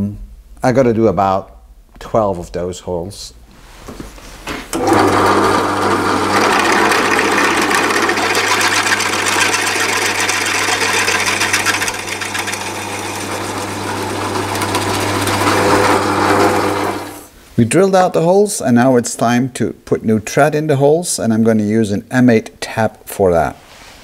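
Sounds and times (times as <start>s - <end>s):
drill press motor humming: 4.7s - 17.3s
drill bit cutting metal: 4.8s - 17.2s.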